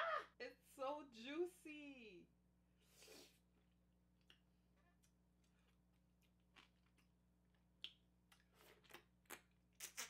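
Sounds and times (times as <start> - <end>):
mouth sucking and smacking: 7.8 - 10.0.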